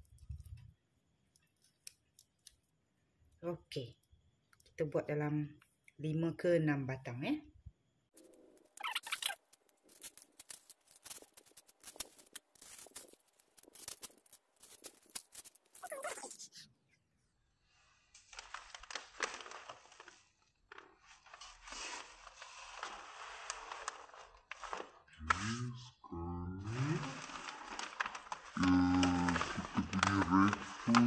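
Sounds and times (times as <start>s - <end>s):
plastic and paper crinkling: 8.2s - 16.5s, 18.2s - 25.5s, 26.6s - 31.0s.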